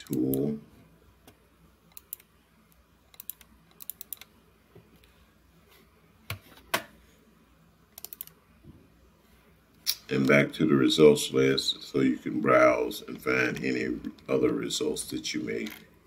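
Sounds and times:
computer keyboard and mouse clicks: 0:01.9 - 0:02.3, 0:03.1 - 0:04.3, 0:08.0 - 0:08.4.

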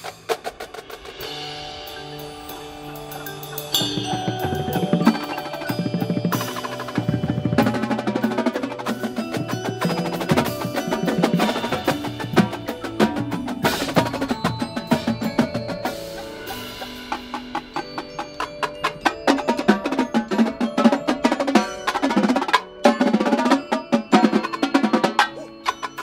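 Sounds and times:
cymbals: 0:00.0 - 0:26.0
drumline playing: 0:00.0 - 0:26.0
marimbas and mallet keyboards: 0:00.8 - 0:26.0.

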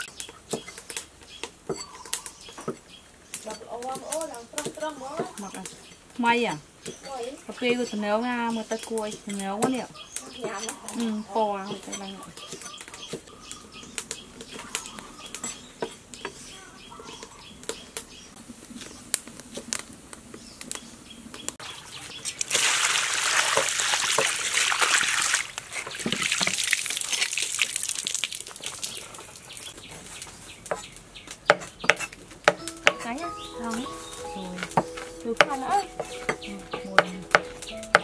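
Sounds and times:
faint bird chirps: 0:00.0 - 0:06.0, 0:09.8 - 0:19.0
water pouring in a rush: 0:21.6 - 0:29.7.

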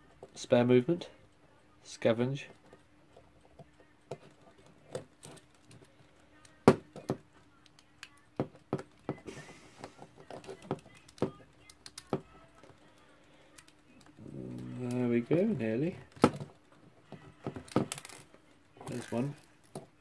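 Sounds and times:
small metallic clicks and taps: 0:02.5 - 0:09.2, 0:10.2 - 0:14.2.

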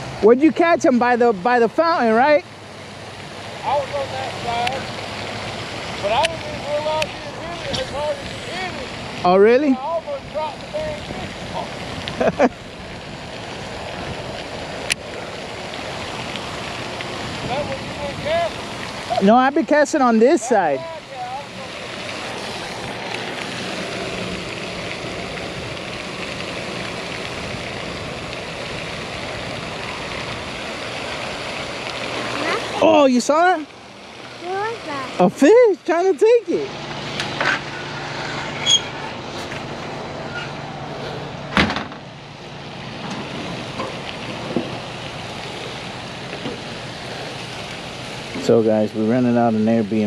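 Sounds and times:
fountain spray falling on water: 0:00.0 - 0:50.0
meat sizzling on a grill: 0:05.6 - 0:38.4.

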